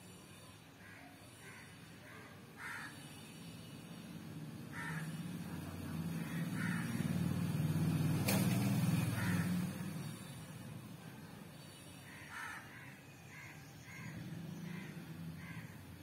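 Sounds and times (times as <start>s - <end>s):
crows cawing: 0.8s - 3.0s, 4.7s - 5.4s, 6.1s - 7.2s, 9.0s - 9.8s, 12.1s - 15.8s.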